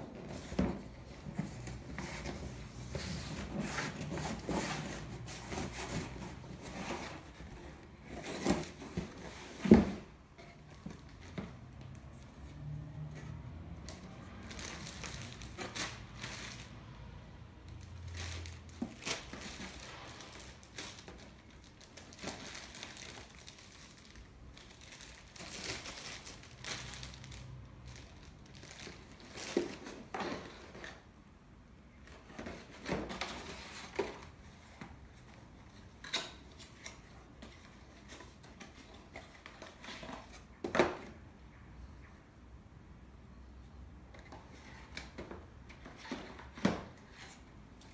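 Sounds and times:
cardboard boxes handled: 0.0s - 12.4s
plastic bags crinkling: 14.2s - 16.9s, 17.7s - 30.4s.

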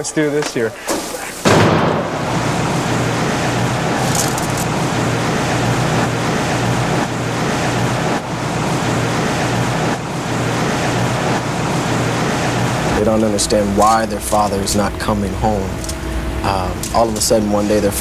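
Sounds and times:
workshop machinery humming: 0.0s - 18.0s
high hiss: 0.7s - 7.0s.

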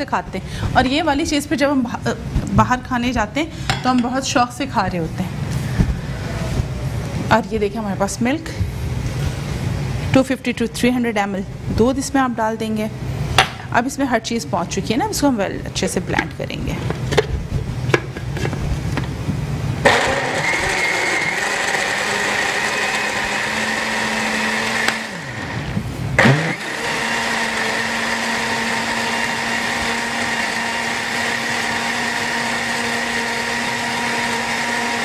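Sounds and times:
electric blender motor running: 19.8s - 35.0s.

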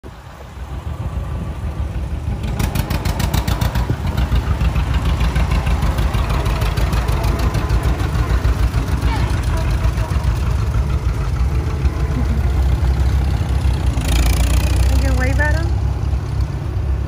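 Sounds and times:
tractor engine popping rhythmically: 2.3s - 15.7s.

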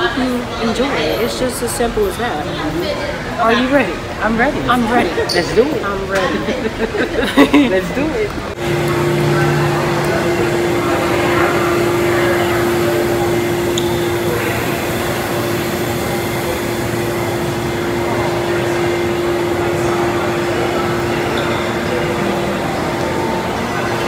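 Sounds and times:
faint voices of passers-by: 0.0s - 24.0s
steady droning hum: 6.4s - 24.0s.

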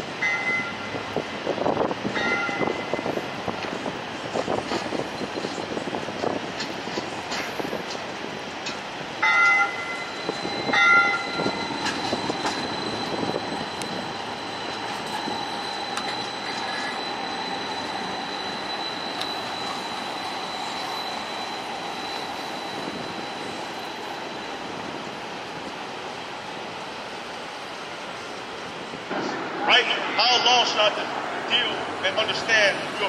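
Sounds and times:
streetcar passing with high whine: 0.0s - 33.0s
streetcar horn blasts: 9.2s - 10.0s.

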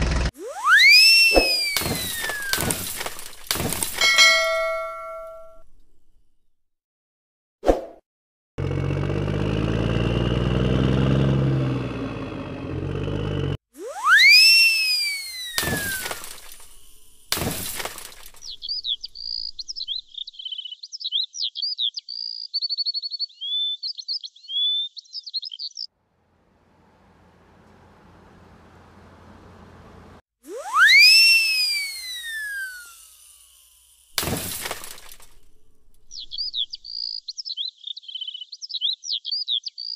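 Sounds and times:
rising and falling whistle: 0.4s - 2.7s, 13.8s - 16.3s, 30.5s - 33.2s
crashing smashes: 1.5s - 5.6s, 15.6s - 19.8s, 33.0s - 36.7s
engine-like rumble: 8.6s - 13.6s, 26.0s - 30.2s
rapid high bird-like chirping: 18.4s - 25.9s, 36.1s - 39.9s.

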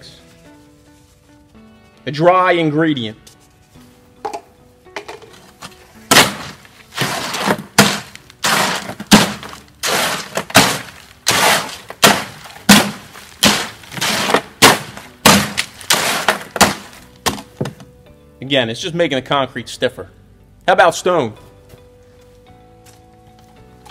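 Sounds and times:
hoe scraping through concrete mix: 6.1s - 17.0s.

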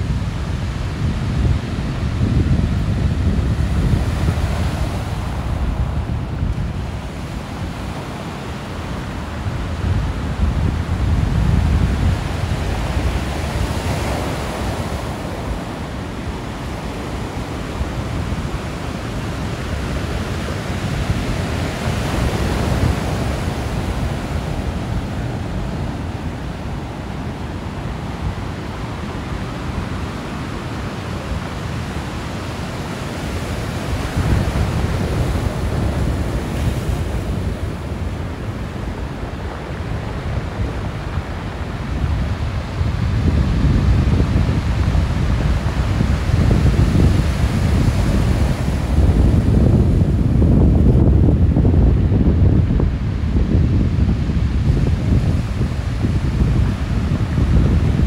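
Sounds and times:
sea waves breaking on beach: 0.0s - 58.0s
wind rumbling on microphone: 0.0s - 58.0s.

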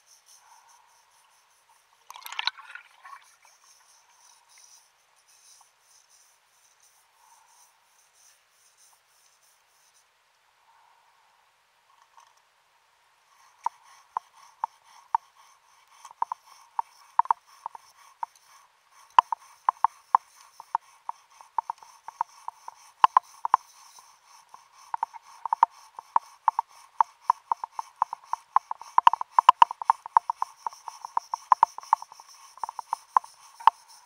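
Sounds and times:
underwater scraping strokes: 2.0s - 4.7s.

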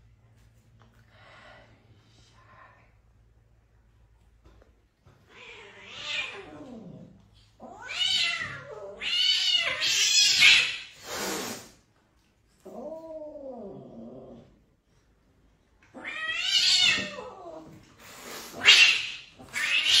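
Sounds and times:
cat hissing: 7.6s - 11.8s, 16.0s - 20.0s.

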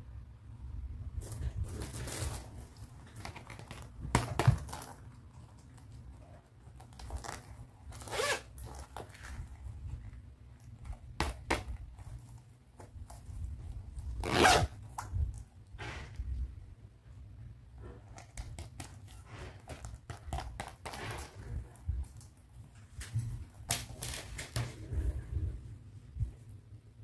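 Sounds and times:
handling rustle: 1.2s - 16.5s, 17.8s - 26.5s
zipper zipping: 7.1s - 9.0s, 14.2s - 14.8s.

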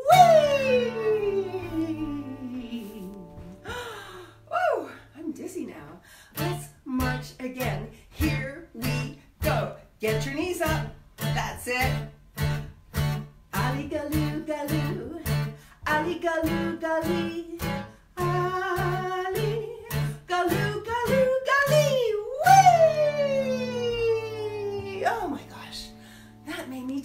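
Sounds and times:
acoustic guitar strumming: 0.0s - 4.5s, 6.4s - 26.7s
person singing: 0.0s - 5.0s, 13.6s - 25.7s.

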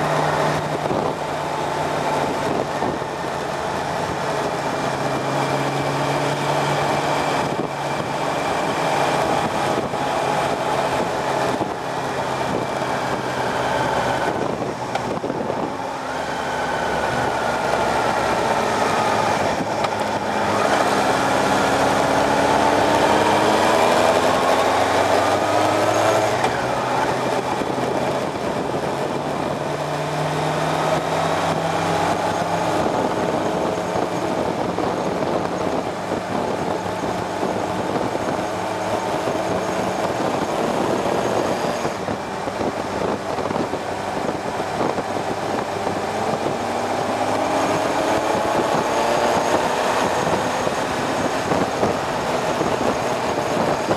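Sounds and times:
motorcycle engine accelerating: 0.0s - 53.9s
wind rushing over microphone: 0.0s - 53.9s.

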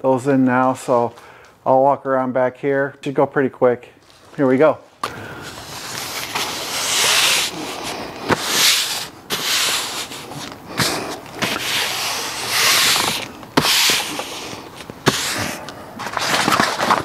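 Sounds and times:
canvas cover rubbing on seat: 5.4s - 15.6s.

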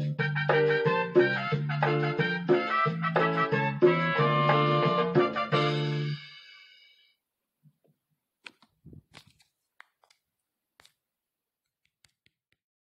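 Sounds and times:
faint clicks and taps: 7.6s - 10.2s, 11.6s - 12.6s.

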